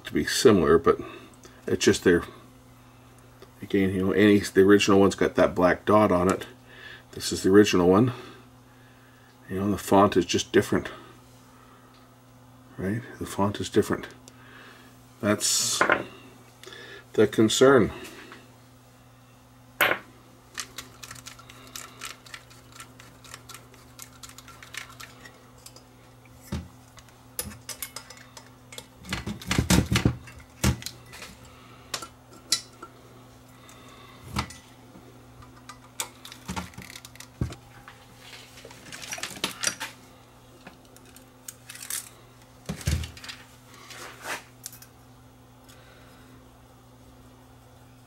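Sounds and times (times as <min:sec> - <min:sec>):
small parts and tools clinking: 0:26.9 - 0:29.6, 0:40.9 - 0:42.1.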